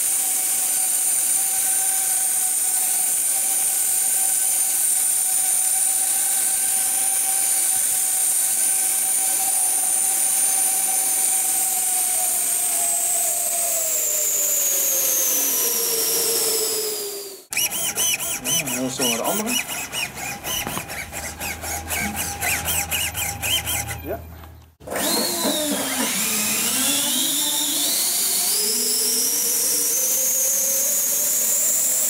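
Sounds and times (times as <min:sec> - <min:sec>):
electric fans whining: 0:06.1 - 0:29.9.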